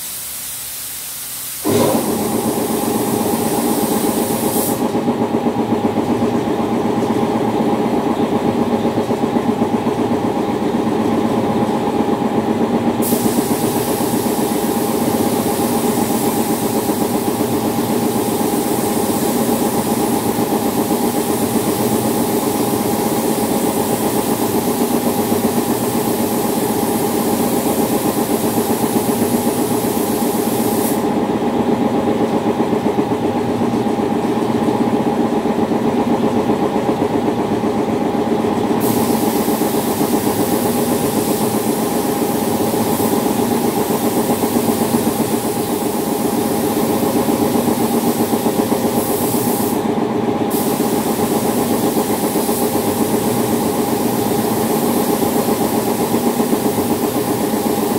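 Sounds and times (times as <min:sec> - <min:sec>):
spray gun hissing: 0:00.0 - 0:05.0, 0:13.0 - 0:31.1, 0:38.8 - 0:49.8, 0:50.5 - 0:57.9
loud machine hum: 0:01.5 - 0:18.4.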